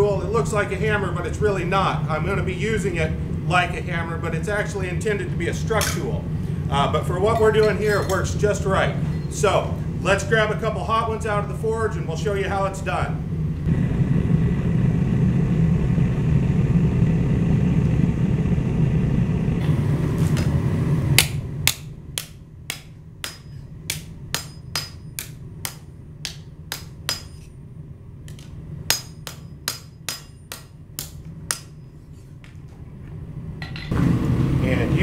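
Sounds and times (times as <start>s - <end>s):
hammer striking hot steel: 5.8s - 6.1s, 7.3s - 8.3s, 21.2s - 27.6s, 28.3s - 32.2s.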